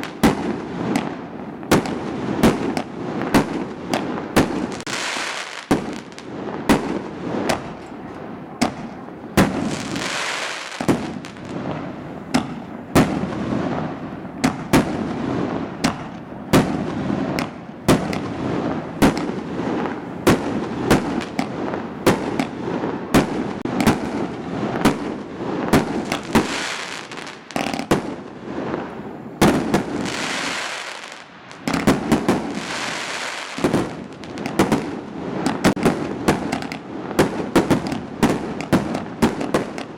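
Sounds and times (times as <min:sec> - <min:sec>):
fireworks crackling hiss: 0:00.0 - 0:39.9
firework shells bursting: 0:23.2 - 0:28.2.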